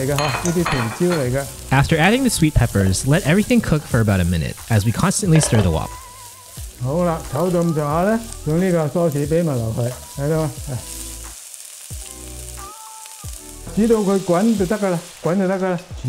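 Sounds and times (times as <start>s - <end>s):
vegetables sizzling in hot oil: 0.0s - 16.0s
metal spatula stirring in wok: 5.3s - 5.9s.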